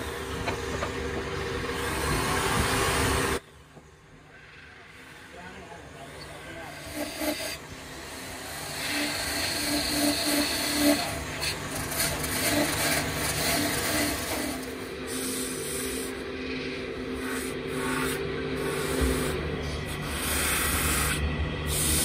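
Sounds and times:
lathe humming: 0.0s - 3.4s, 4.4s - 22.0s
chisel scraping spinning wood: 6.2s - 22.0s
sandpaper rubbing spinning wood: 6.4s - 16.2s, 17.1s - 22.0s.

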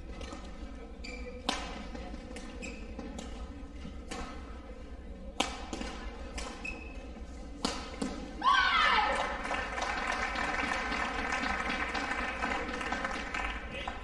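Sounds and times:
low hall hum: 0.0s - 14.0s
racket hitting shuttlecock: 1.4s - 4.6s, 5.3s - 8.4s.

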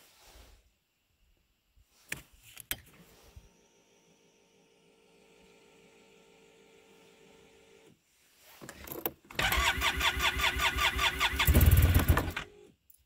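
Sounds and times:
electric starter cranking engine: 9.3s - 12.6s.

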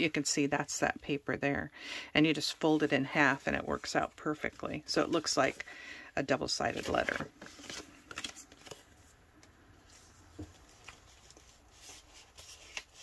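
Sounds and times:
paper rustling and crackling: 6.5s - 9.1s, 9.9s - 13.0s.

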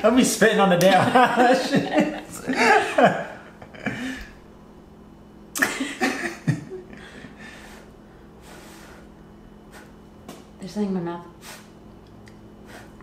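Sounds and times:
soft puffs of breath: 7.3s - 10.0s, 11.4s - 11.8s, 12.6s - 13.0s.

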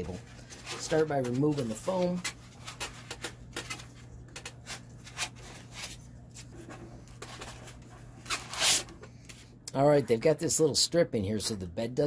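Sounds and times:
foam rustling and scraping: 0.0s - 2.7s.

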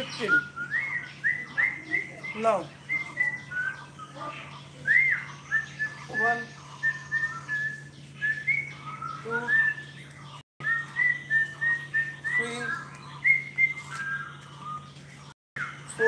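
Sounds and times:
bird singing whistled notes: 0.0s - 16.0s
steady low hum: 0.0s - 16.0s.

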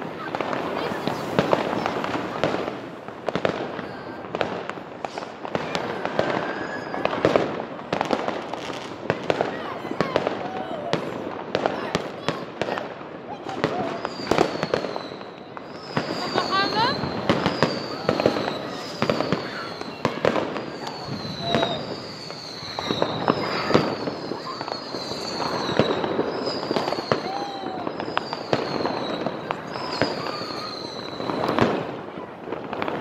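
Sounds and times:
firecracker bangs and crackles: 0.0s - 33.0s
high falling whistle: 5.9s - 7.2s, 13.9s - 31.6s.

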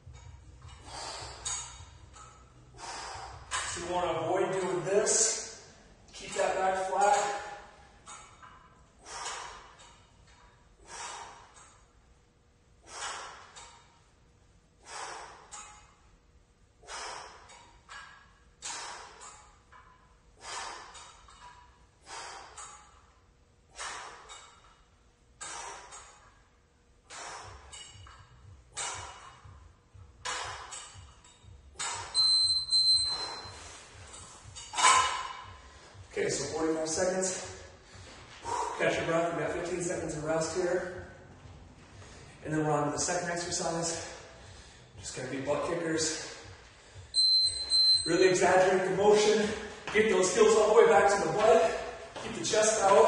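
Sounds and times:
man breathing hard: 0.7s - 3.7s, 8.9s - 9.9s, 10.8s - 11.9s, 12.8s - 13.8s, 14.8s - 16.0s, 16.8s - 17.9s, 18.6s - 19.5s, 20.3s - 21.2s, 22.0s - 23.0s, 23.6s - 24.7s, 25.4s - 26.4s, 27.0s - 30.8s, 37.3s - 38.8s, 43.9s - 45.0s, 46.2s - 47.1s
timer high beep: 32.1s - 33.5s, 47.1s - 48.3s.

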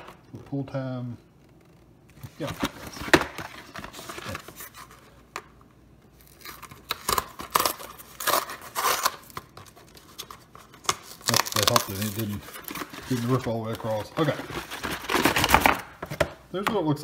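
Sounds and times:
paperboard tearing: 10.9s - 15.8s.

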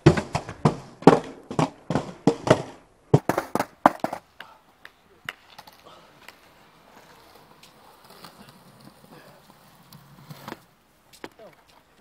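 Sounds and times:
skateboard slamming on concrete: 0.0s - 4.3s, 7.0s - 10.7s.

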